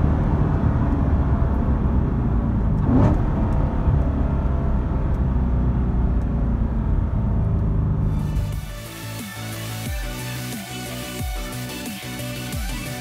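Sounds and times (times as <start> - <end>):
deep car exhaust drone: 0.0 - 8.8.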